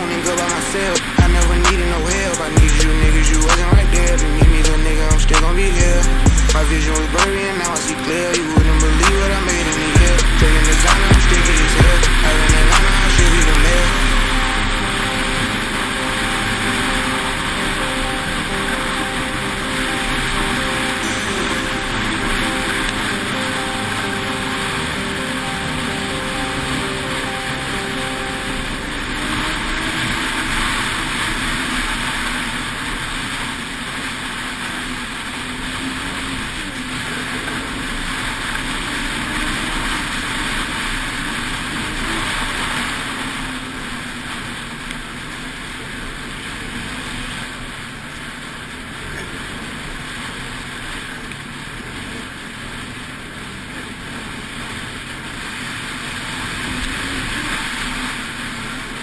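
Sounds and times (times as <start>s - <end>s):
snowmobile engine running: 0.0s - 59.0s
rush of track snow and wind: 13.9s - 59.0s.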